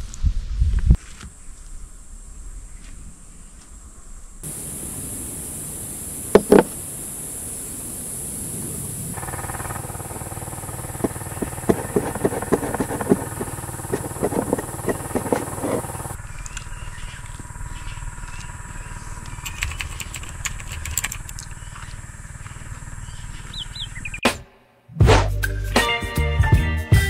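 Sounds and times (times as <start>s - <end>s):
knife sawing through toasted sandwich: 11.0s - 16.2s.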